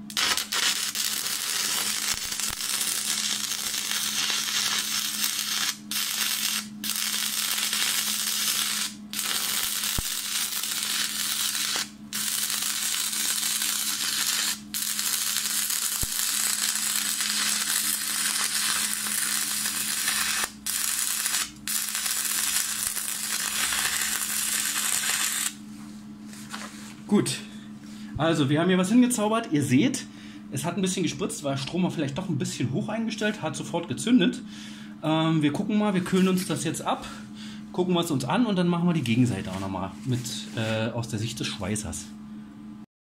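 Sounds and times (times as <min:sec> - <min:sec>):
welding arc hissing and sputtering: 0:00.0 - 0:25.6.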